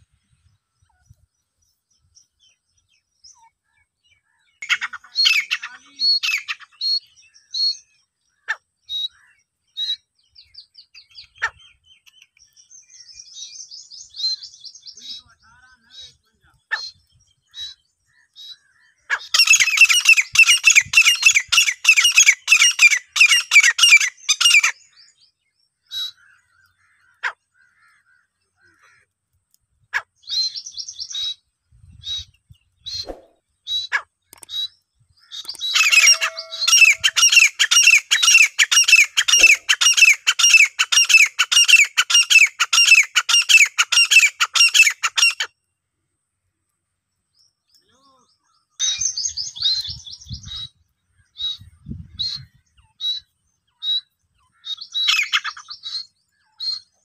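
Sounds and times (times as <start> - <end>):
francolin calling: 2.4 - 25.2, 32.0 - 45.5, 48.3 - 57.0.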